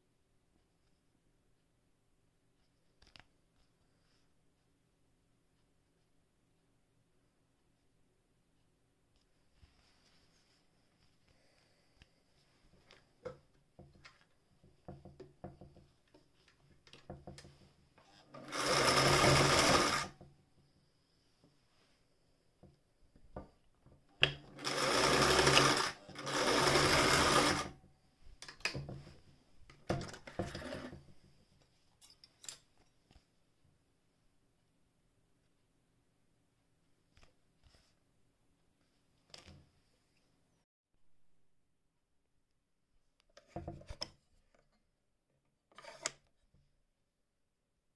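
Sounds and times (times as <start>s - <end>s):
sewing machine metallic clicks: 24.2s - 27.7s.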